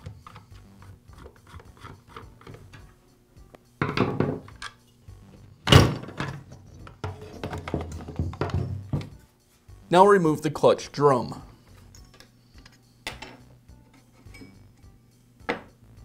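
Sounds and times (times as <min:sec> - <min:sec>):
screwdriver clattering on wooden bench: 0:13.1 - 0:13.5.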